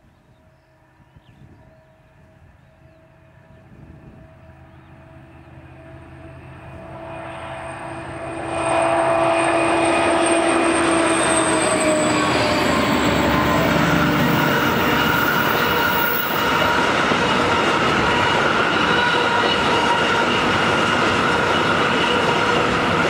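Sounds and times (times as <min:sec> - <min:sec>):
diesel locomotive passing: 0:00.0 - 0:23.0
high whine: 0:04.8 - 0:23.0
train wheels rolling: 0:08.5 - 0:23.0.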